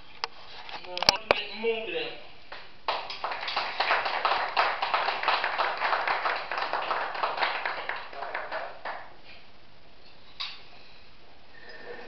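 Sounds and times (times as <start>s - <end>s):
hands clapping: 2.5s - 9.2s.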